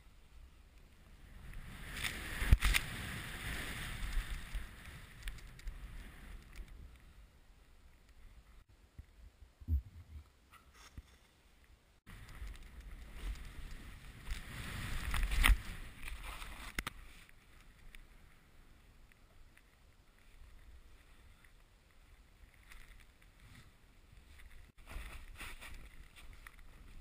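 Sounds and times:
snowboard scraping over snow: 1.6s - 5.1s, 13.2s - 16.6s.

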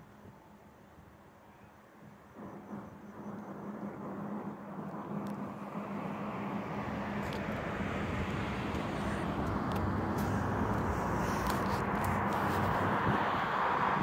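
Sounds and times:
diesel locomotive engine humming: 4.6s - 14.0s.

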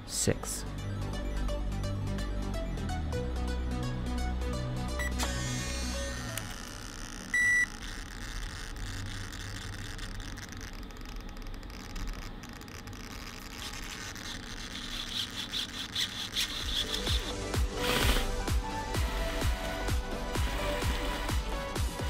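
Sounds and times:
short electronic beep: 5.0s - 5.3s, 7.3s - 7.7s.

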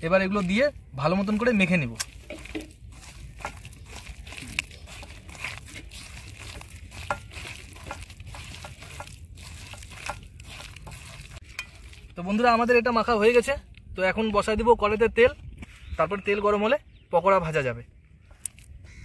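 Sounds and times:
hand squishing thick batter: 0.0s - 13.8s.

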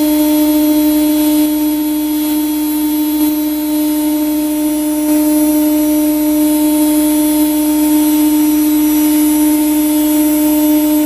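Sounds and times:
faint high whine: 0.0s - 11.0s
machine router humming: 0.0s - 11.0s.

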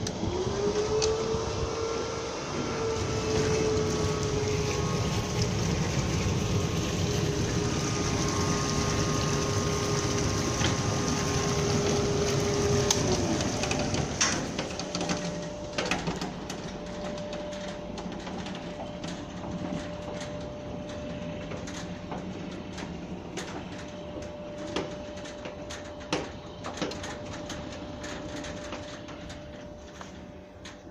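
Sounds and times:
jet pump motor humming: 0.0s - 30.9s
rushing water: 2.8s - 14.6s.

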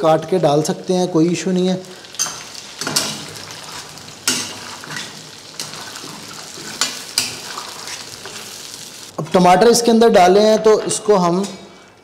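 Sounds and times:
meat sizzling in hot oil: 0.2s - 9.2s
metal spatula scraping a pan: 2.1s - 8.7s.

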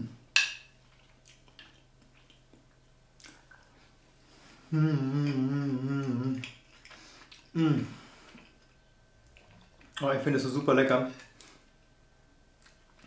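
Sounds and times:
person chewing: 0.8s - 3.9s, 5.1s - 10.0s, 12.6s - 13.0s
person humming mmm: 4.6s - 6.6s, 7.5s - 8.2s.

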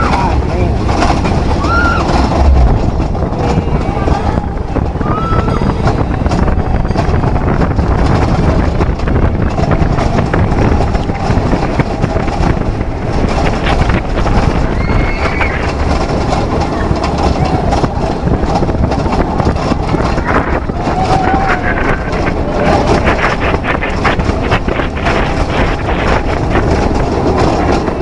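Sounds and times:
riders' voices: 0.0s - 1.1s
roller coaster wheels rumbling: 0.0s - 28.0s
wind buffeting microphone: 0.0s - 28.0s.

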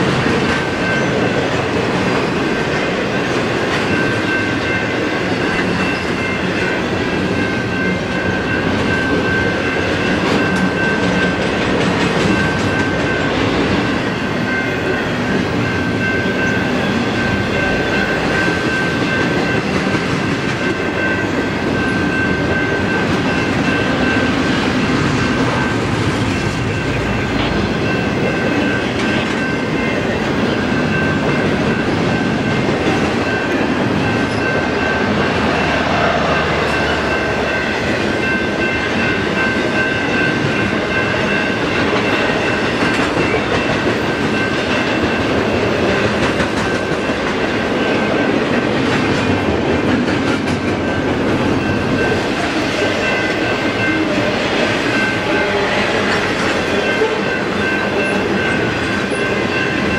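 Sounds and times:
freight train wheels rumbling: 0.0s - 59.9s
high-pitched ringing: 12.3s - 46.0s.

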